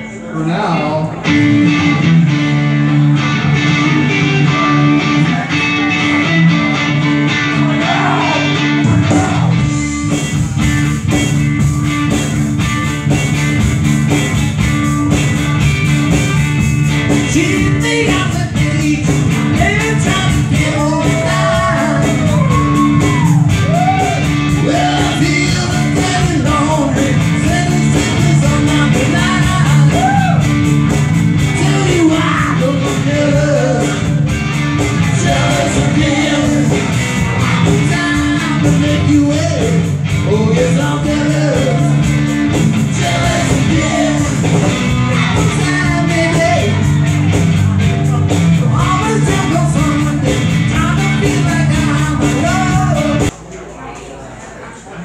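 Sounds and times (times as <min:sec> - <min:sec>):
electric bass: 0:00.0 - 0:53.4
electric guitar: 0:00.0 - 0:53.4
drum kit: 0:01.2 - 0:53.4
man singing: 0:07.3 - 0:09.8, 0:17.1 - 0:30.6, 0:31.4 - 0:47.1, 0:48.0 - 0:53.3.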